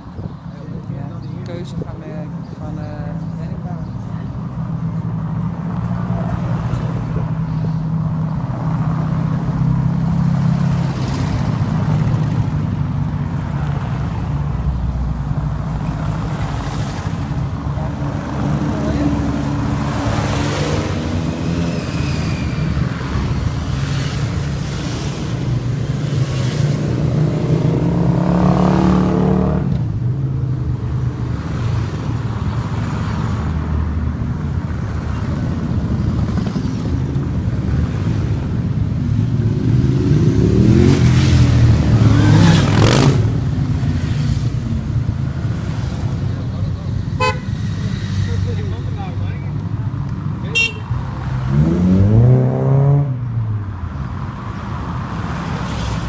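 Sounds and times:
vehicle engines passing by: 0.0s - 56.0s.

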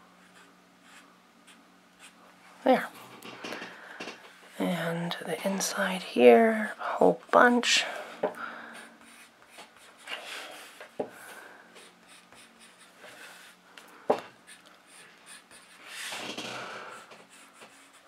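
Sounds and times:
pencil scratching on paper: 0.2s - 2.2s, 9.0s - 11.0s, 11.8s - 13.6s, 14.5s - 16.3s, 16.9s - 18.0s.

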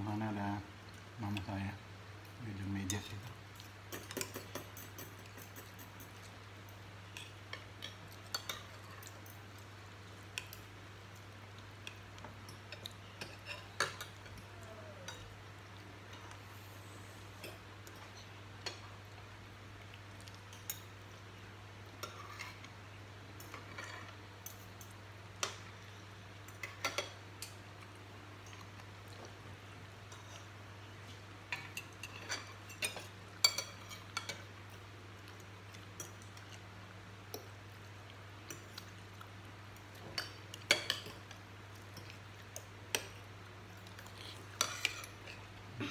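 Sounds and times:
cutlery clinking on plates: 3.9s - 6.3s.

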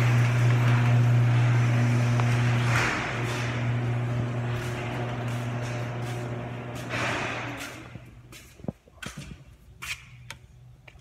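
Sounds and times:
low mechanical hum: 0.0s - 11.0s
footsteps on concrete: 4.3s - 11.0s.

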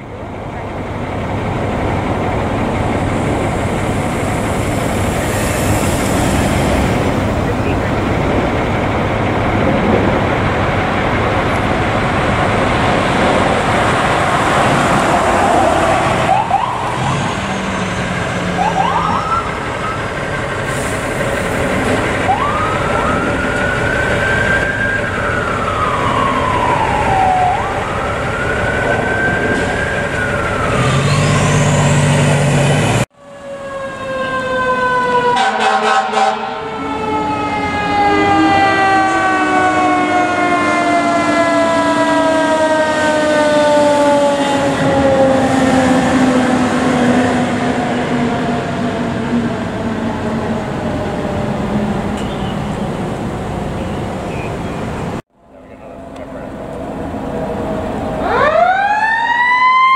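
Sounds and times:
road and engine noise: 0.0s - 59.9s
siren sliding down in pitch: 13.0s - 20.2s, 22.2s - 52.8s, 56.0s - 59.9s
electronic siren yelps and wails: 13.2s - 20.2s, 22.2s - 31.9s, 33.2s - 52.1s, 57.2s - 59.9s.

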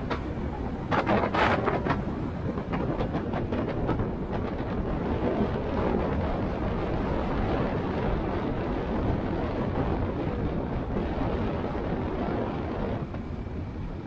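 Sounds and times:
motorcycle road noise: 0.0s - 14.0s
wind rushing over microphone: 0.0s - 14.0s.

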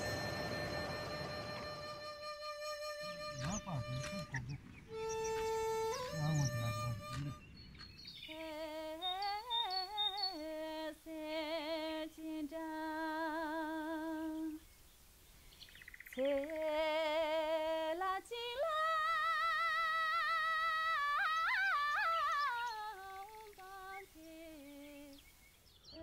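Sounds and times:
high solo voice singing: 16.2s - 25.2s.

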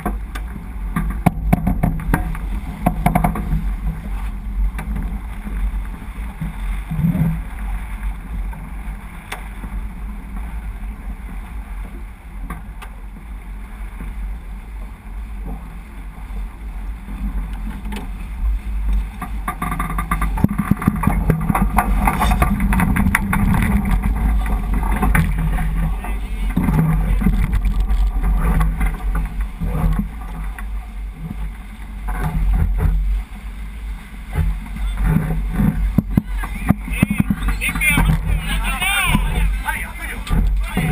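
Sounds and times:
water rushing along a hull: 0.0s - 40.9s
wind buffeting microphone: 13.1s - 40.9s.

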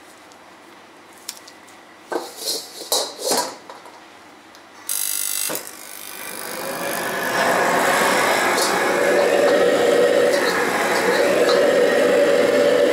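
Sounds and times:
hand wiping wok scraping: 2.1s - 3.4s, 6.5s - 12.9s
gas burner flame rushing: 6.1s - 12.9s.

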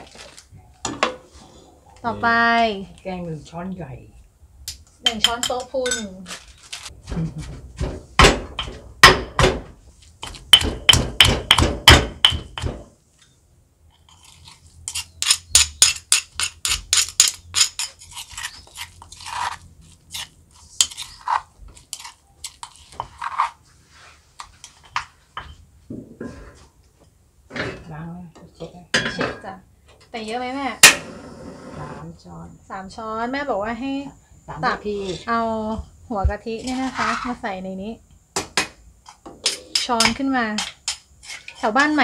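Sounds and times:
stone pestle pounding in mortar: 7.8s - 12.9s
metal spoon scraping a mortar: 13.9s - 25.6s, 34.7s - 35.5s, 36.5s - 37.4s, 39.0s - 42.0s.

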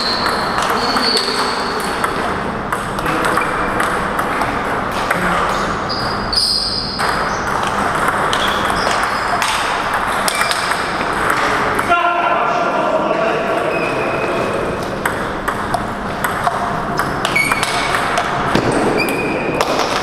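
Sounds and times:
sports hall background noise: 0.0s - 20.0s
table tennis ball clicks: 7.0s - 11.9s, 14.8s - 20.0s.

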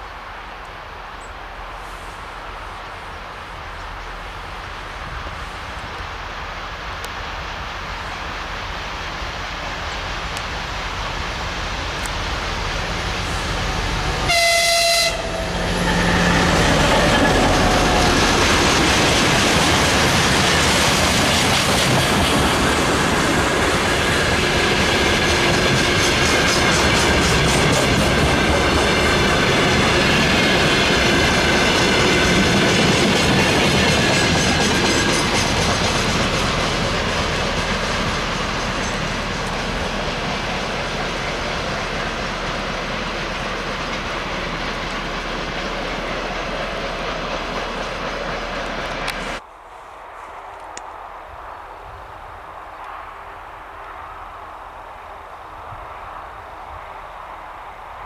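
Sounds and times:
diesel locomotive passing: 0.0s - 58.0s
locomotive horn blast: 14.2s - 17.6s
train wheels clicking over rail joints: 15.6s - 49.4s.

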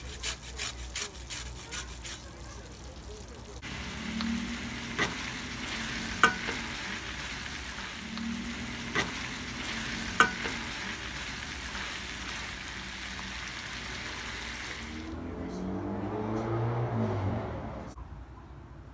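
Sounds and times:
meat sizzling in a skillet: 1.2s - 15.1s.

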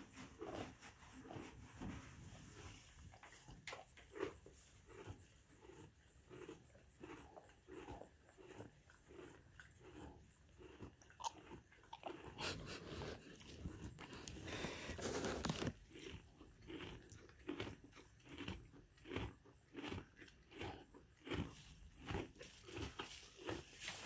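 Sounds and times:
donkey chewing hay: 0.0s - 24.0s
dry hay rustling: 22.4s - 24.0s.

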